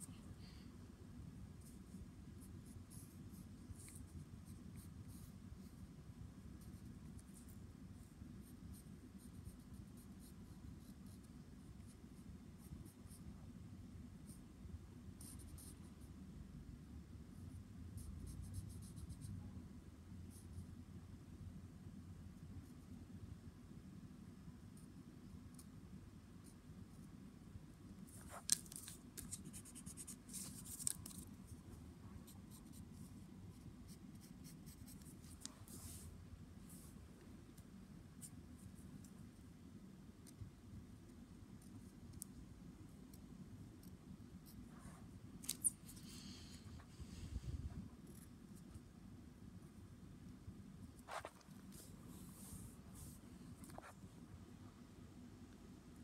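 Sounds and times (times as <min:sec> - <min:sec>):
low room hum: 0:00.0 - 0:56.0
pencil scratching on paper: 0:01.6 - 0:05.8, 0:06.6 - 0:12.0, 0:15.2 - 0:16.0, 0:18.0 - 0:19.3, 0:28.1 - 0:31.2, 0:32.2 - 0:36.1.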